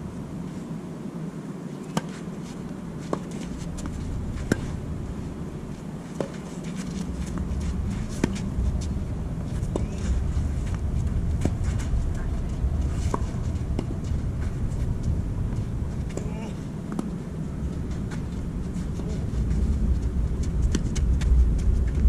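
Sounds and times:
low rumble: 0.0s - 0.4s, 7.0s - 22.0s
tennis racket strokes: 1.7s - 22.0s
tennis ball bouncing: 3.0s - 4.8s, 6.2s - 8.9s, 9.6s - 14.5s, 16.9s - 17.2s, 20.6s - 21.1s.

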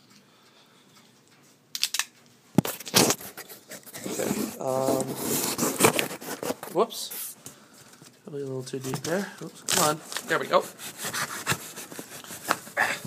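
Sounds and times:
knife slicing cardboard: 10.6s - 12.8s.

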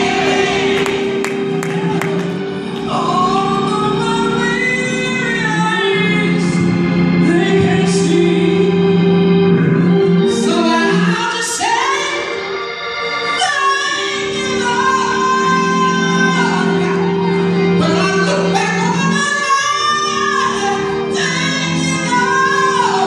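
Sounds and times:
held chords: 0.0s - 23.0s
woman singing gospel: 2.8s - 8.9s, 10.4s - 12.4s, 13.4s - 23.0s.

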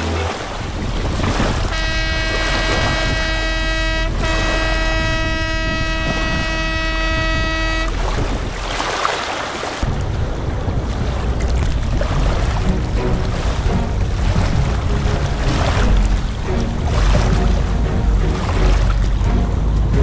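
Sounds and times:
boat engine drone: 0.0s - 20.0s
boat horn blasts: 1.4s - 8.5s.

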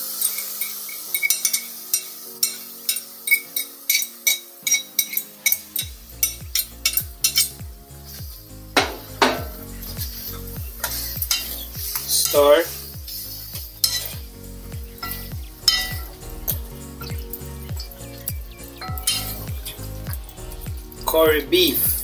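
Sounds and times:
meat sizzling in pan: 0.0s - 22.0s
metal spoon clinking on frying pan: 0.2s - 7.5s, 19.0s - 19.4s.

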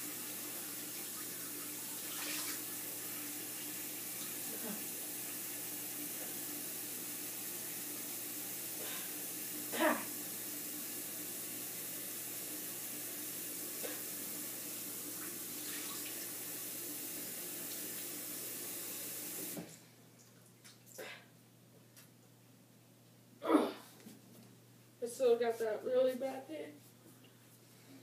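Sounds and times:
person short vocal sound: 23.4s - 23.9s.

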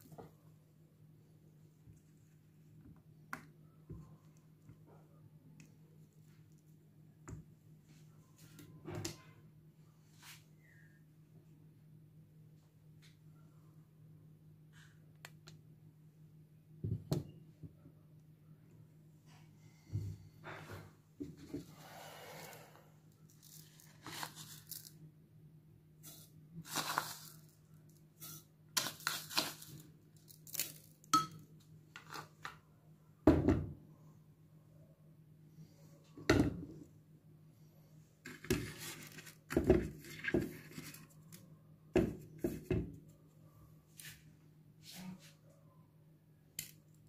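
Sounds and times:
packet rustling and crinkling: 23.3s - 25.0s, 26.6s - 27.6s, 28.8s - 31.0s.

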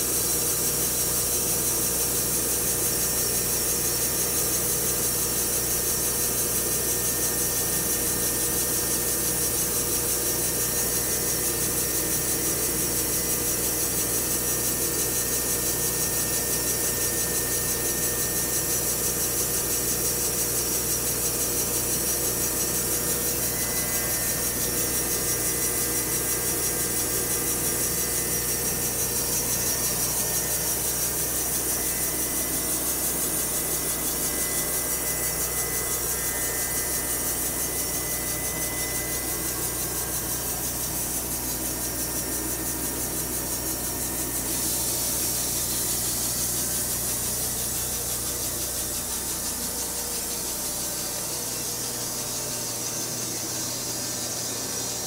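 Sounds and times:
band sawmill sawing log: 19.2s - 52.1s.

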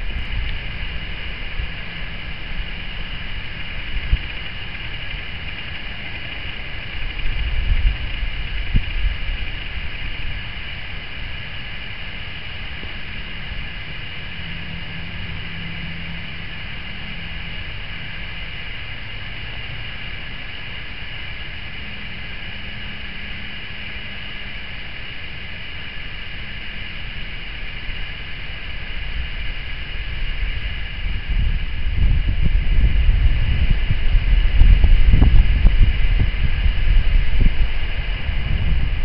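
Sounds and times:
low rumble: 0.0s - 18.9s, 27.2s - 39.0s.

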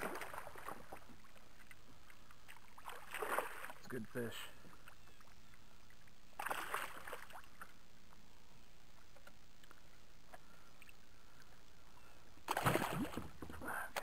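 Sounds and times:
faint water sounds: 0.0s - 14.0s.

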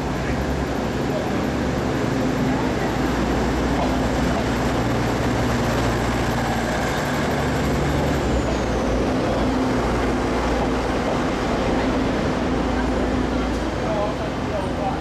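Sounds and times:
diesel train engine: 0.0s - 15.0s
train rumbling on track: 0.0s - 15.0s.

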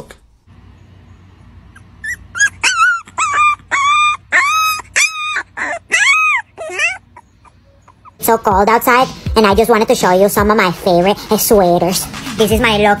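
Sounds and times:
dog whining and yipping: 1.7s - 8.2s.

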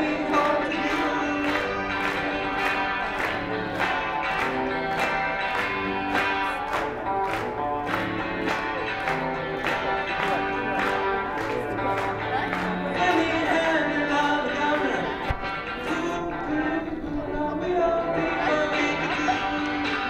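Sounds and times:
electric guitar playing: 0.0s - 20.0s.

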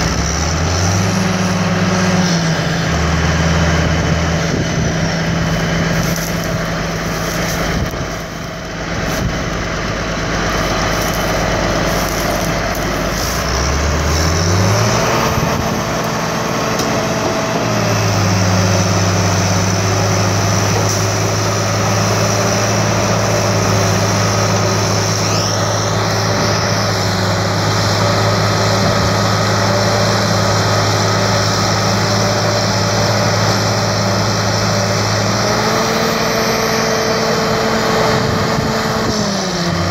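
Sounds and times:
rising whine: 0.0s - 31.6s
heavy diesel engine revving: 0.0s - 39.9s.

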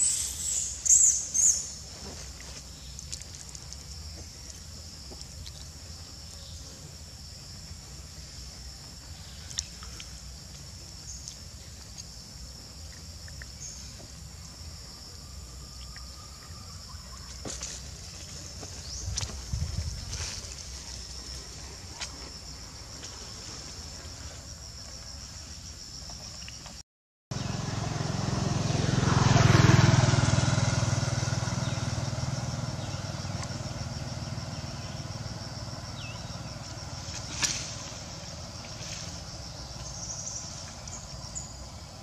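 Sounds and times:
low wind rumble: 18.0s - 21.4s.

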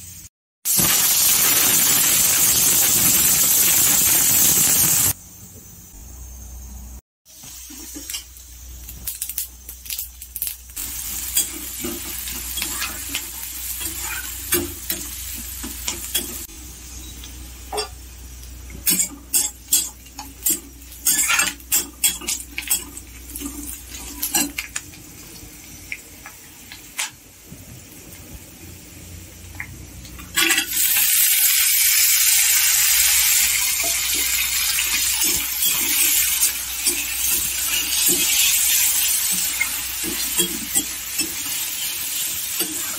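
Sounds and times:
onions sizzling in hot oil: 0.0s - 5.2s, 7.3s - 42.9s
metal spatula scraping a pan: 11.2s - 15.0s, 18.9s - 24.6s, 33.8s - 42.9s.

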